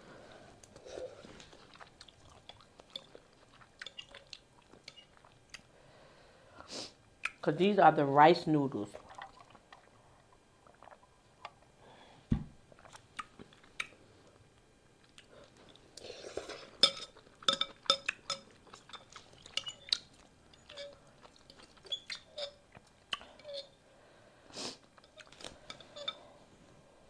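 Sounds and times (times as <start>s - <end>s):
chewing and mouth sounds: 0.6s - 5.7s, 8.9s - 11.7s, 12.7s - 14.4s, 15.0s - 23.7s, 24.8s - 26.1s
dull thump: 12.3s - 12.6s.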